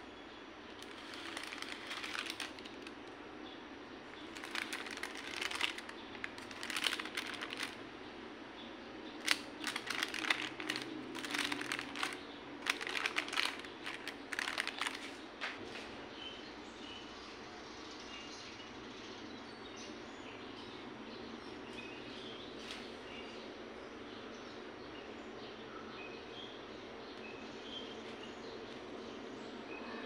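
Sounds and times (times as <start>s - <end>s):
baking parchment crinkling: 0.7s - 3.2s, 4.1s - 7.8s, 9.2s - 15.8s.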